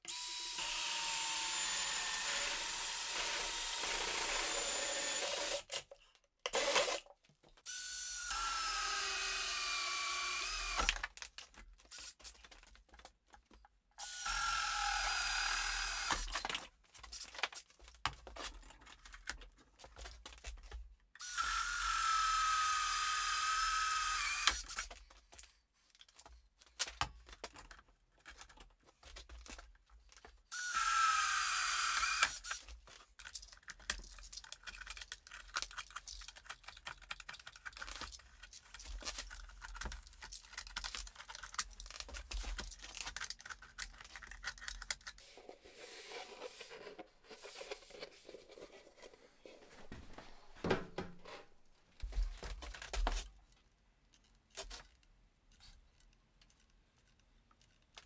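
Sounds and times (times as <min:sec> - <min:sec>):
drill motor whine: 0:00.1 - 0:05.6, 0:07.7 - 0:10.9, 0:14.0 - 0:16.3, 0:21.2 - 0:24.7, 0:30.5 - 0:32.5.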